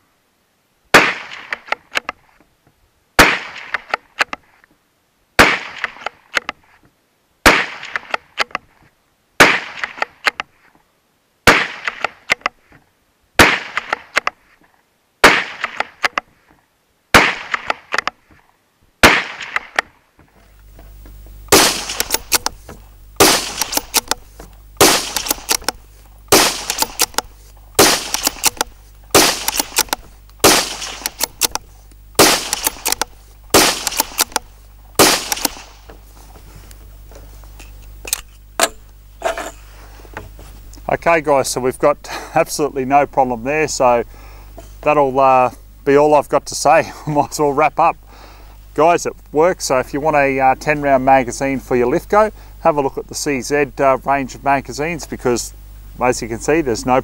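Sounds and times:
rifle shots: 0:00.9 - 0:01.8, 0:03.2 - 0:04.0, 0:05.4 - 0:06.2, 0:07.4 - 0:08.5, 0:09.4 - 0:10.3, 0:11.4 - 0:12.4, 0:13.4 - 0:14.3, 0:15.2 - 0:16.2, 0:17.1 - 0:18.1, 0:19.0 - 0:19.9, 0:21.5 - 0:31.6, 0:32.2 - 0:35.9
steady low hum: 0:15.5 - 0:57.0
rifle bolt clicks: 0:21.5 - 0:24.2, 0:24.8 - 0:35.8.

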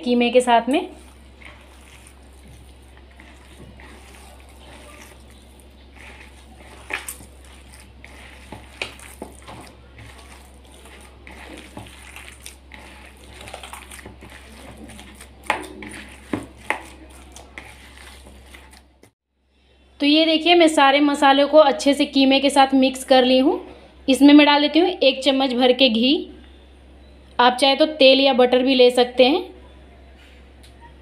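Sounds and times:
hand squelching minced meat: 0:00.5 - 0:19.2.

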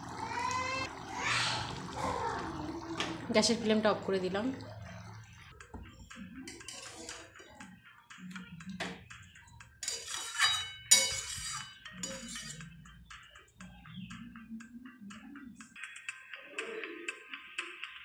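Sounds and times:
spatula scraping metal pan: 0:06.5 - 0:07.5, 0:09.8 - 0:12.8.

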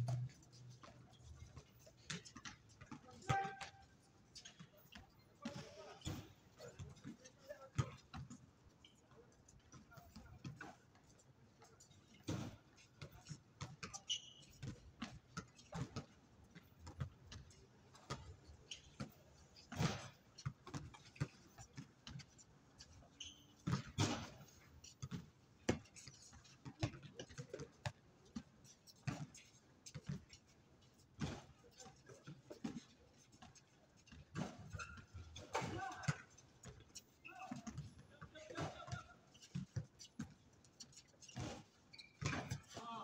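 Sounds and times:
basketball bouncing on court: 0:02.0 - 0:03.8, 0:26.8 - 0:27.7, 0:42.2 - 0:42.8.

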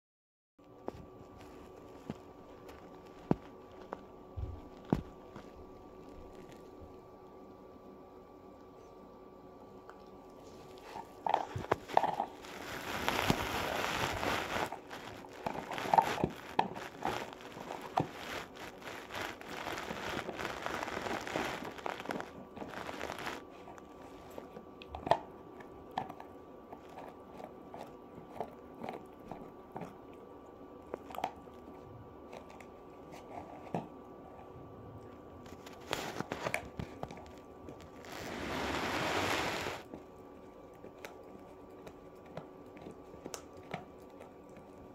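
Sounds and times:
puppy chewing and crunching: 0:00.6 - 0:44.9.

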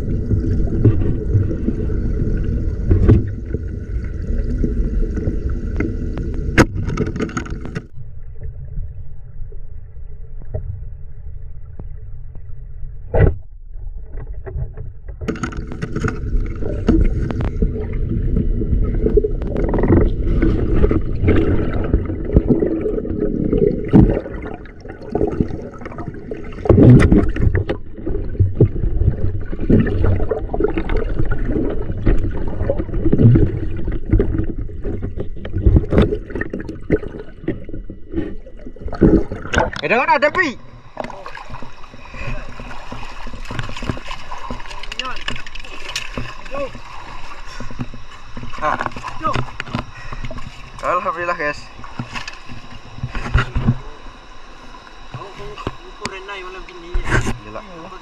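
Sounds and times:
river water sloshing and gurgling: 0:14.0 - 0:56.0.

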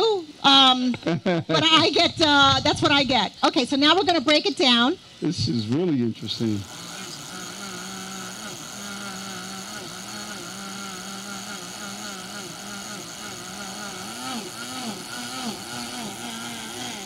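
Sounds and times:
blender motor humming: 0:06.2 - 0:17.0.

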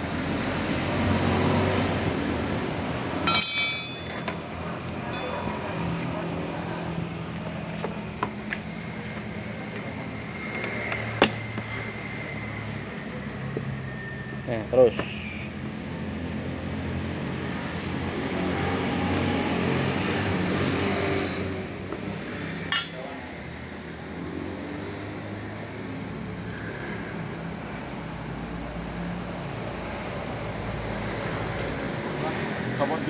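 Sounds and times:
vehicle engine hum: 0:00.0 - 0:33.0
sharp metallic clink: 0:03.3 - 0:04.4, 0:05.0 - 0:05.9, 0:31.3 - 0:31.9.

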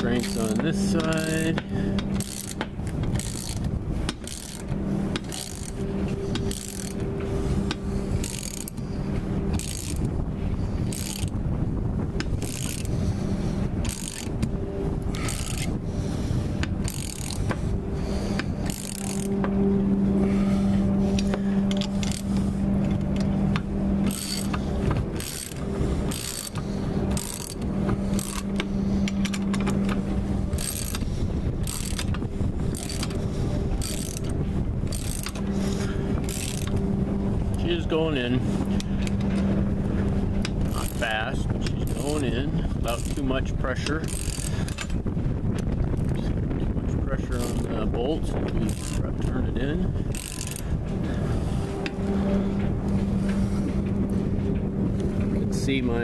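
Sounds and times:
low steady hum: 0:00.0 - 0:56.0
ratchet wrench clicking: 0:02.0 - 0:05.8, 0:06.4 - 0:07.0, 0:07.7 - 0:08.8, 0:09.6 - 0:10.1, 0:10.9 - 0:11.3, 0:12.4 - 0:12.9, 0:13.8 - 0:14.4, 0:15.1 - 0:15.7, 0:16.8 - 0:17.5, 0:18.4 - 0:19.4, 0:24.0 - 0:24.6, 0:25.2 - 0:27.6, 0:28.2 - 0:29.9, 0:30.6 - 0:31.0, 0:31.6 - 0:32.2, 0:32.8 - 0:33.2, 0:33.8 - 0:35.5, 0:42.9 - 0:45.0, 0:48.6 - 0:49.4, 0:50.1 - 0:50.6.

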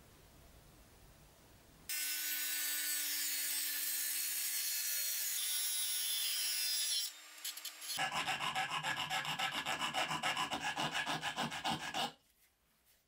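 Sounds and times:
rotary tool cutting sheet metal: 0:01.9 - 0:12.1.

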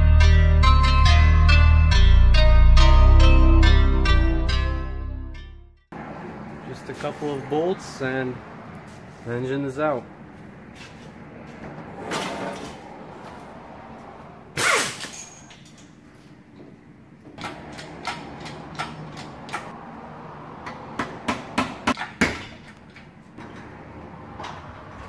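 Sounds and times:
sharp knocks on metal: 0:20.6 - 0:22.7.

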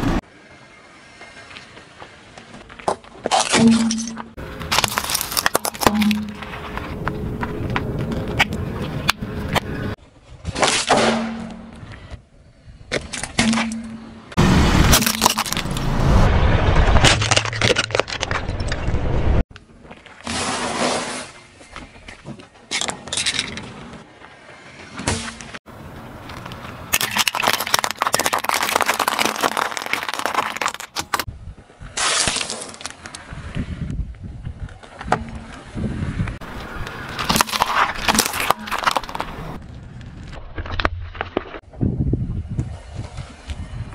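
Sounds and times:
tyre crushing small objects: 0:02.8 - 0:09.7, 0:14.9 - 0:15.9, 0:17.0 - 0:19.0, 0:26.2 - 0:31.3, 0:36.6 - 0:39.6
car rolling on asphalt: 0:04.4 - 0:10.0, 0:25.6 - 0:31.8, 0:32.8 - 0:41.7.

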